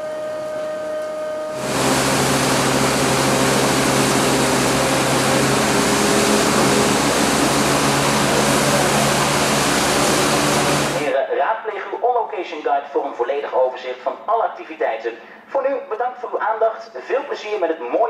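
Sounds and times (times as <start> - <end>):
low machinery hum: 0.0 - 11.1
ship machinery rushing: 1.3 - 11.1.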